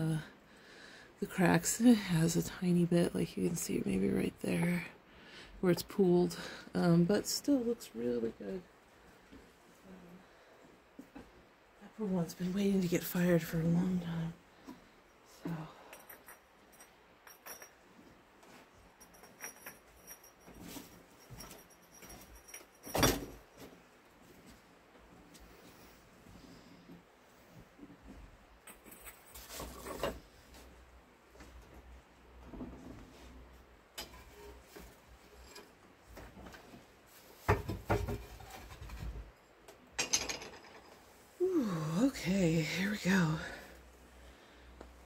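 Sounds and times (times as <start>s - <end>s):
ceramic kiln shelf clunks and scrapes: 28.7s - 30.6s, 32.4s - 39.4s.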